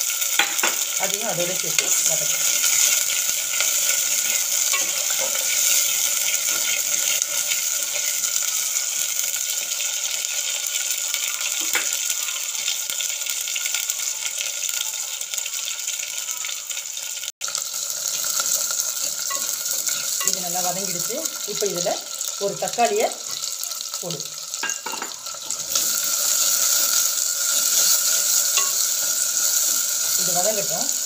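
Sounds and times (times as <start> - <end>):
frying hiss in oil: 0.0 - 31.0
metal ladle stirring: 1.8 - 8.2.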